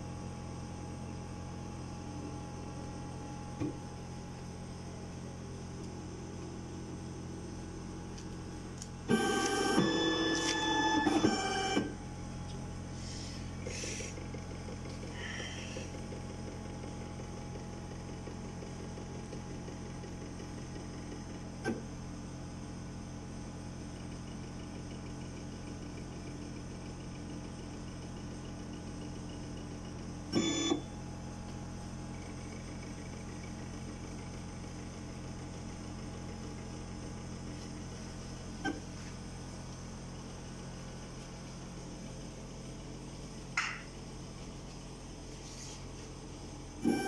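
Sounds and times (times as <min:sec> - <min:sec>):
milling machine hum: 0:00.0 - 0:47.0
motor tones: 0:01.7 - 0:16.6, 0:30.2 - 0:31.0, 0:45.3 - 0:47.0.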